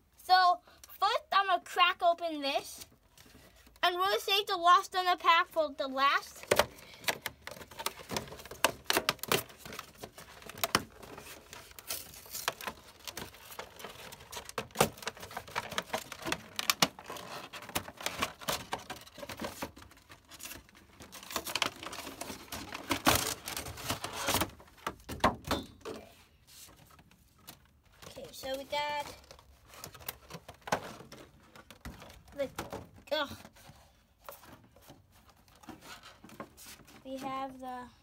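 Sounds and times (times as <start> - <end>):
plastic packaging crinkling and tearing: 6.4 - 24.9.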